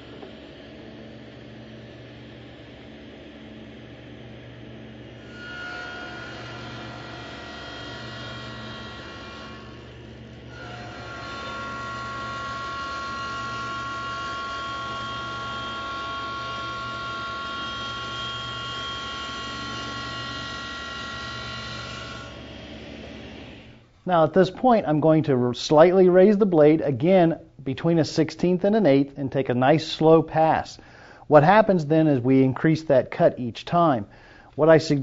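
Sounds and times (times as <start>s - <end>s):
table saw whining: 0.0s - 23.8s.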